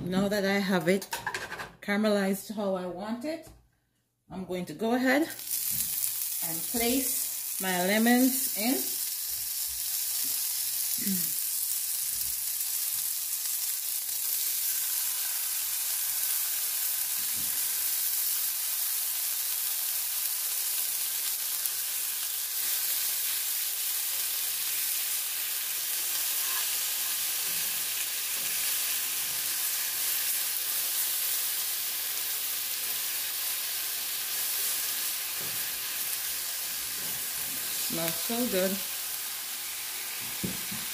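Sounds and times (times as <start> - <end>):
lemon slices sizzling in sugar: 5.3 - 40.9
spoon turning slices in pan: 26.0 - 31.2.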